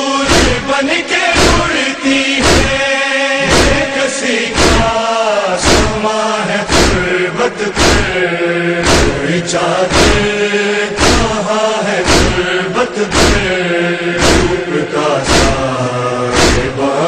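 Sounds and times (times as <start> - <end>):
men chanting in unison: 0.0 - 17.0
hands beating on chest: 0.3 - 0.6, 1.4 - 1.7, 2.4 - 2.8, 3.5 - 3.9, 4.6 - 4.9, 5.6 - 6.0, 6.7 - 7.0, 7.8 - 8.1, 8.8 - 9.2, 9.9 - 10.3, 11.0 - 11.4, 12.0 - 12.4, 13.1 - 13.5, 14.2 - 14.6, 15.2 - 15.6, 16.4 - 16.7.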